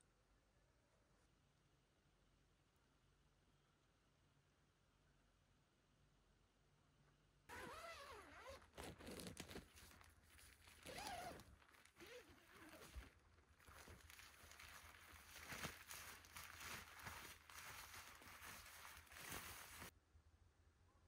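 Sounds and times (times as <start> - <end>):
tent zipper and fabric rustling: 7.5 - 19.9.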